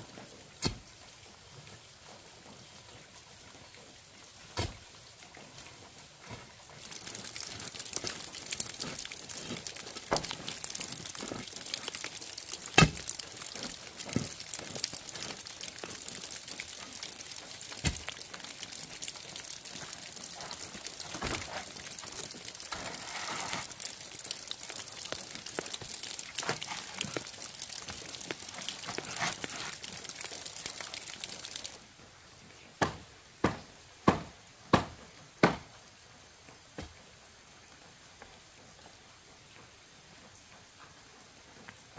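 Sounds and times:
stones crunching underfoot: 6.2 - 31.8
rustling and scraping: 22.6 - 24.0, 28.5 - 29.9.

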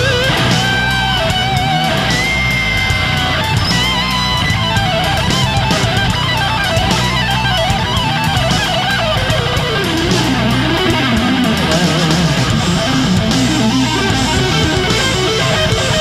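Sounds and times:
rock music with electric guitar: 0.0 - 16.0.

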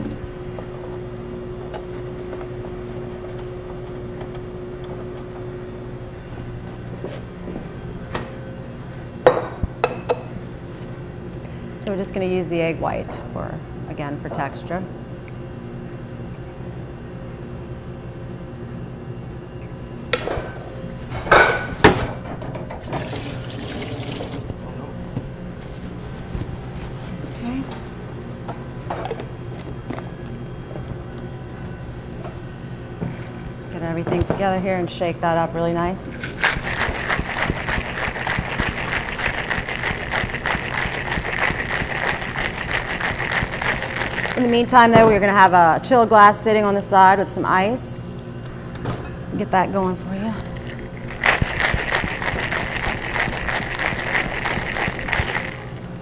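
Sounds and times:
steady low hum: 0.0 - 56.0
water running from sink tap: 23.0 - 24.5
ice rattling in cocktail shaker: 36.2 - 44.5, 50.6 - 55.8.

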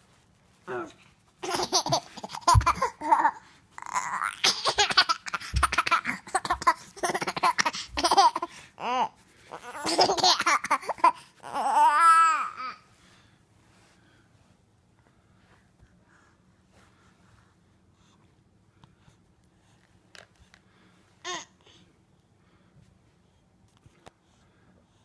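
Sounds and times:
baby laughing: 1.4 - 12.8
baby babbling: 2.5 - 4.8, 5.4 - 12.8.

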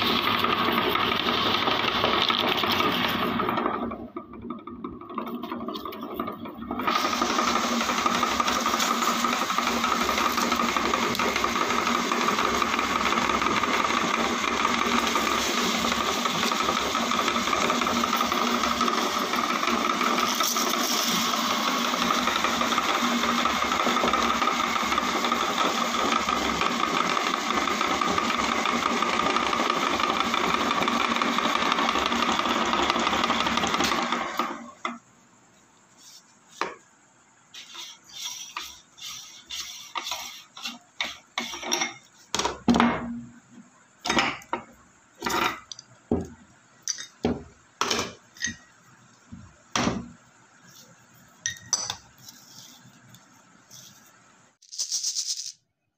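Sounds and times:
meat grinder motor running: 0.0 - 34.9
chips crunching in grinder: 6.9 - 23.1.

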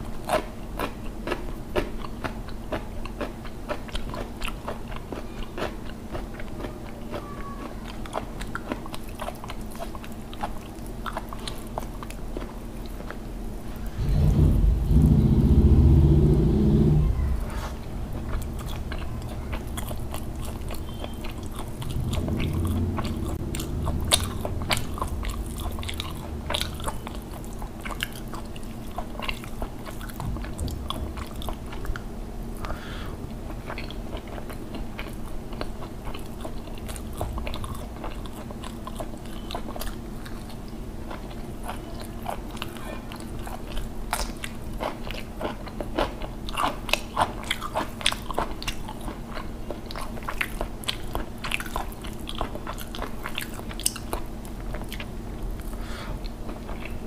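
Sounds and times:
low rumble: 13.4 - 28.0, 30.1 - 32.6
person chewing with wet mouth clicks: 18.2 - 32.8, 33.5 - 57.0.

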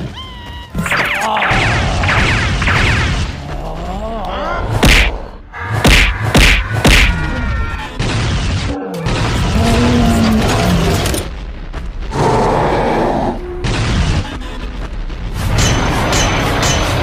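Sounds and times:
heavy punch impacts: 4.8 - 5.1, 5.8 - 7.3.

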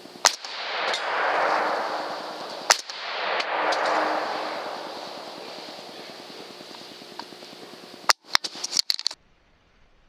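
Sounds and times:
echo rolling through woods: 0.0 - 8.1
rifle shots: 0.2 - 6.8.

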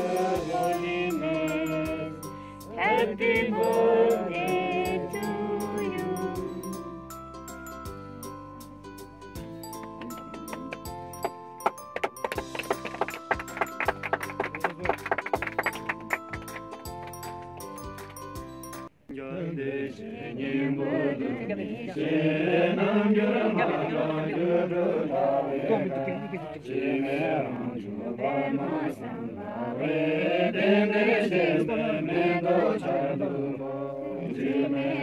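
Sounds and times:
monks chanting in unison: 19.4 - 35.0.

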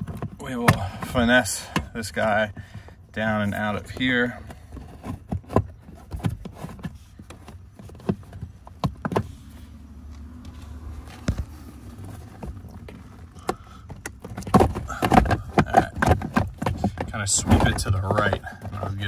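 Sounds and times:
hard plastic clicks and knocks: 12.3 - 19.0.

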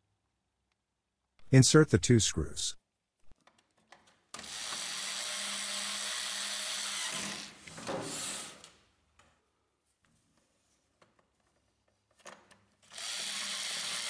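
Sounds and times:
electric screwdriver running: 4.4 - 8.7, 12.9 - 14.0.

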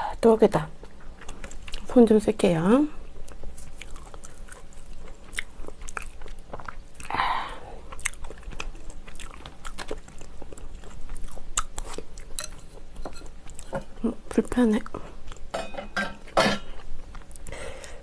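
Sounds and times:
chewing: 0.8 - 2.0, 3.0 - 14.0, 14.8 - 15.5, 16.7 - 18.0.

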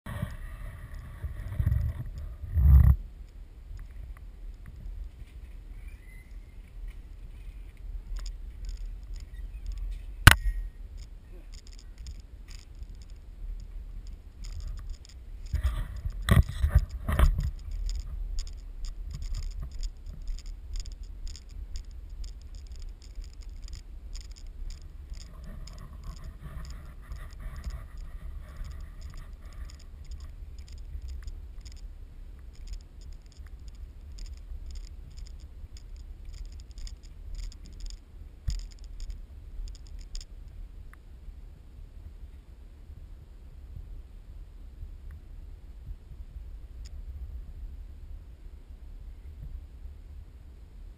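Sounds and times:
camera and pole scraping: 0.1 - 3.0, 14.0 - 31.8
irregular ticking: 8.0 - 40.6.

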